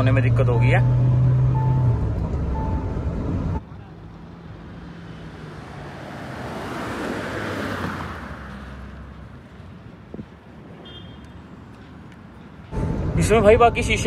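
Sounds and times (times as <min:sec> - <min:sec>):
vehicles passing at speed: 0:00.0 - 0:14.0
tyre and wind noise: 0:09.8 - 0:11.0.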